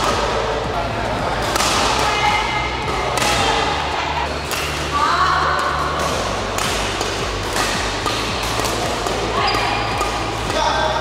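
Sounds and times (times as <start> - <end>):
racket hitting shuttlecock: 1.4 - 10.7.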